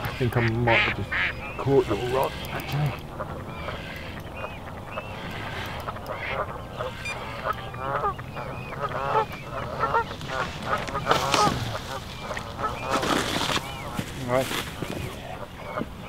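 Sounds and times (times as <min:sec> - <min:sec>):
waterfowl calling: 0:00.0 - 0:16.0.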